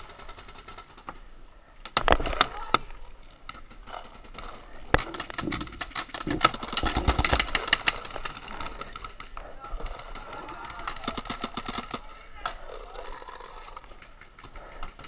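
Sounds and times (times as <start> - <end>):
paintball markers firing: 3.8 - 13.0.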